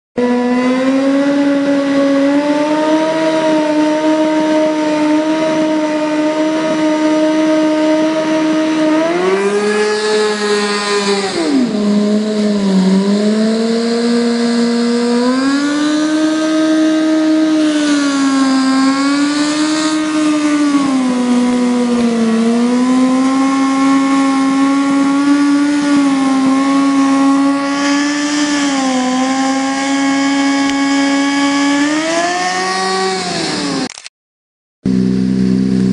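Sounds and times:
motorcycle engine at high revs: 0:00.2 - 0:34.0, 0:34.9 - 0:35.9.

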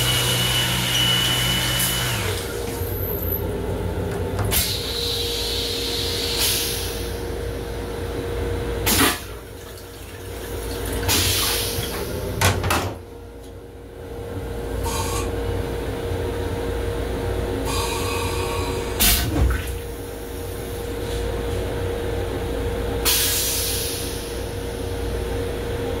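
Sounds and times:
steady hum: 0:00.0 - 0:26.0
toilet water spraying bursts: 0:08.8 - 0:12.2.

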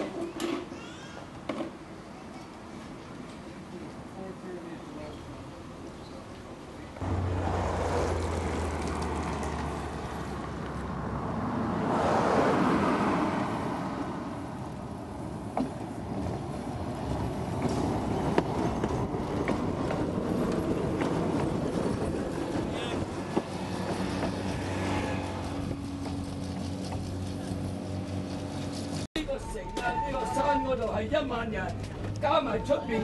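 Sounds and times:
streetcar wheels rumbling on rails: 0:00.0 - 0:33.0.

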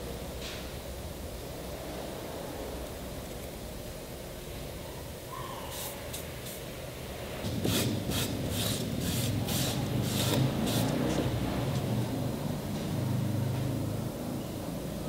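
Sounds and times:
steady low hum: 0:00.0 - 0:15.0
rag rubbing board edge: 0:07.5 - 0:11.8.

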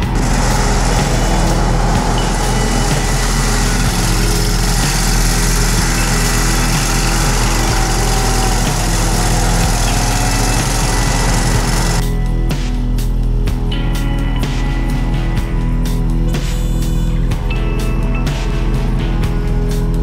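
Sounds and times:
mower engine running: 0:00.0 - 0:12.0.

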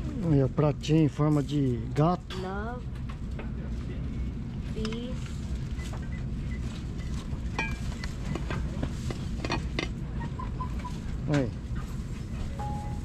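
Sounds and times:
low background rumble: 0:00.0 - 0:13.0
plate ringing note: 0:12.6 - 0:13.0.

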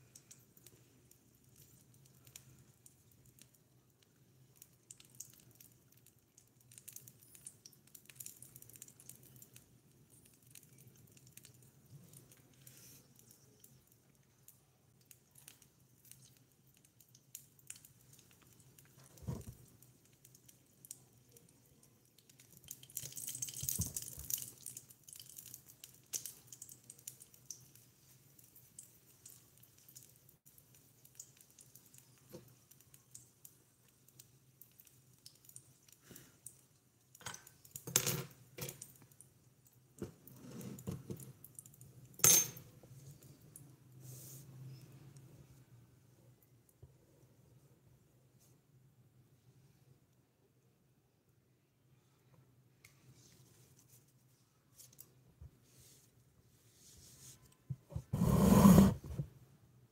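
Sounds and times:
small clicks and taps of dishes: 0:31.0 - 0:39.2
scraping or rustling: 0:56.8 - 0:59.3.

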